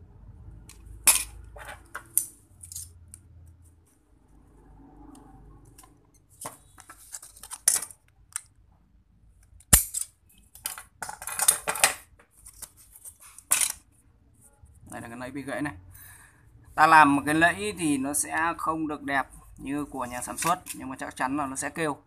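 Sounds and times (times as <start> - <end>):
clicks and rustles on a table: 5.7 - 8.5, 9.4 - 13.9.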